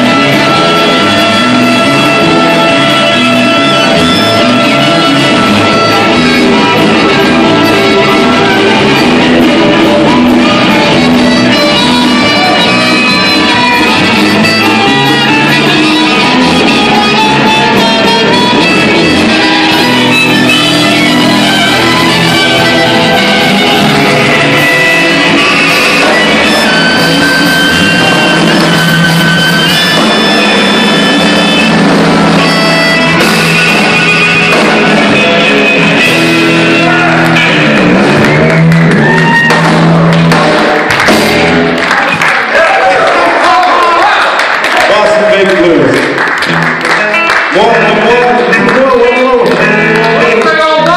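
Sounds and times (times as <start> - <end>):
trumpet: 0.0 - 37.8
harmonica: 0.0 - 40.2
drums: 0.0 - 42.6
electric bass: 0.0 - 42.7, 45.0 - 50.9
live blues band playing: 0.0 - 42.8, 44.4 - 50.9
electric guitar: 0.0 - 50.9.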